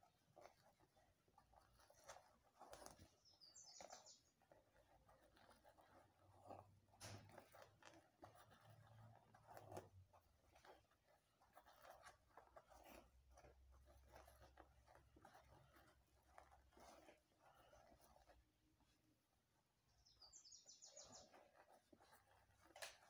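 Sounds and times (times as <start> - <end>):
fingers rustling through hair: 0.0 - 23.0.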